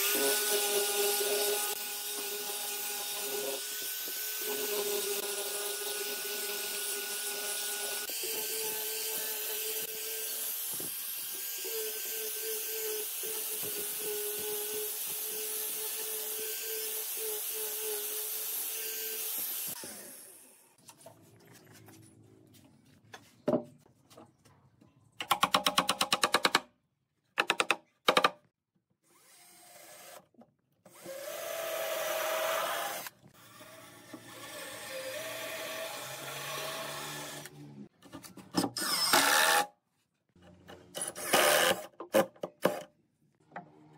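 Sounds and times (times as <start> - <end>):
cordless drill driving screws: 38.8 - 39.7.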